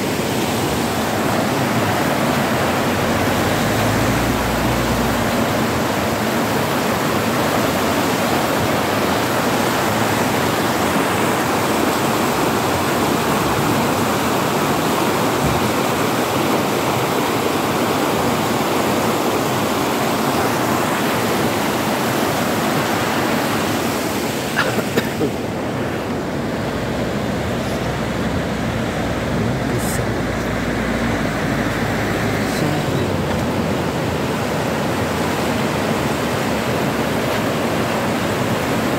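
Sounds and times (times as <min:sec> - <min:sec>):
river rushing over rapids: 0:00.0 - 0:38.9.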